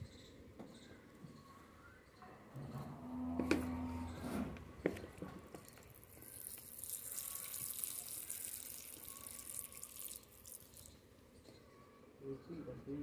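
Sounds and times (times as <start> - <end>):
liquid squirting from squeeze bottle: 6.2 - 11.0.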